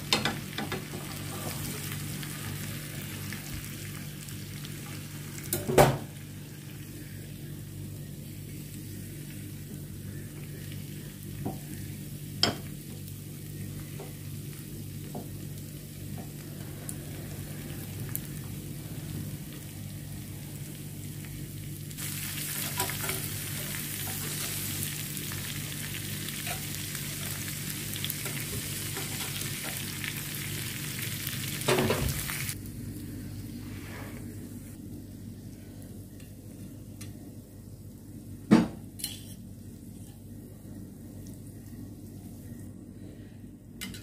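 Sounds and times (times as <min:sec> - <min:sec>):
food sizzling on grill pan: 0:00.0 - 0:07.3, 0:08.0 - 0:32.6.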